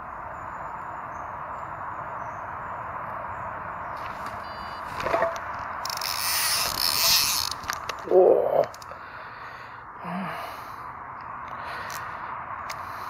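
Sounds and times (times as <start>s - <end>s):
fishing rod rustling: 4.0s - 8.1s
fishing reel clicks: 5.8s - 7.8s.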